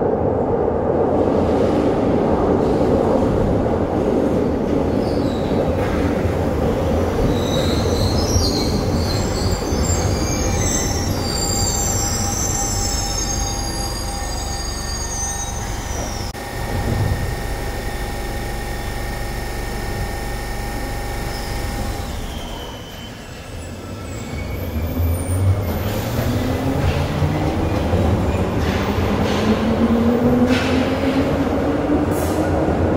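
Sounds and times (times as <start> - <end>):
train rumble and hum: 0.0 - 22.3, 23.2 - 32.9
train wheels squealing on rails: 7.3 - 16.4, 21.2 - 29.7
train motor whine rising: 12.0 - 23.2.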